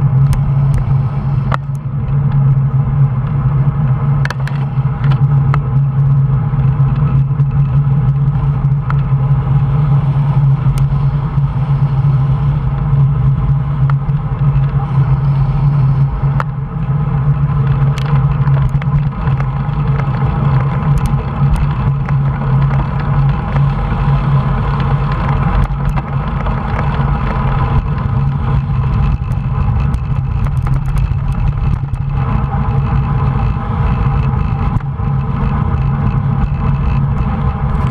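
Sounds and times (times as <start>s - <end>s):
wind buffeting microphone: 6.4s - 37.9s
tyre rumble on tarmac: 15.7s - 37.9s.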